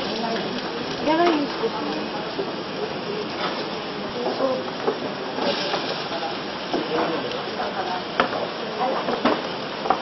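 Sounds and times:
pumpkin sizzling in a pan: 0.0s - 10.0s.

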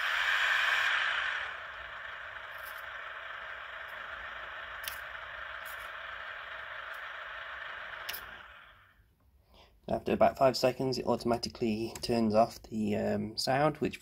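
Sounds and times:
thin simulated engine idle: 0.0s - 9.1s.

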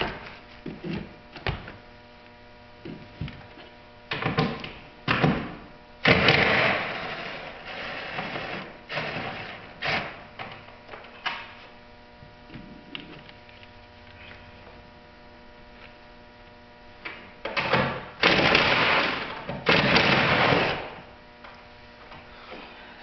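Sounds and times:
steady hum: 0.0s - 23.0s
impact driver hammering: 17.7s - 20.9s.

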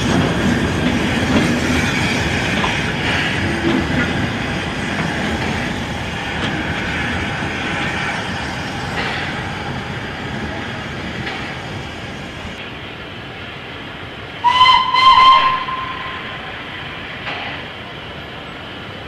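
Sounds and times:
train running on track: 0.0s - 19.0s
steam locomotive whistle blasts: 14.4s - 16.5s.

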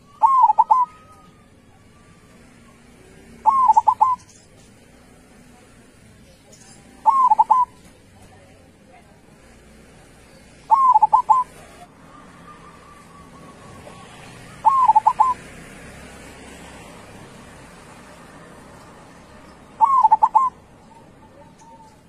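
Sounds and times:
dove cooing: 0.0s - 4.4s, 7.0s - 8.0s, 10.7s - 15.7s, 19.6s - 22.0s.

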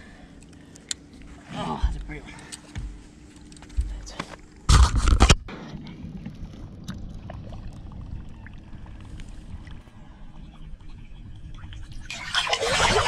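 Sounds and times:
low wind rumble: 0.0s - 13.0s
wind rush on microphone: 4.7s - 13.0s
small water sounds: 5.6s - 13.0s.

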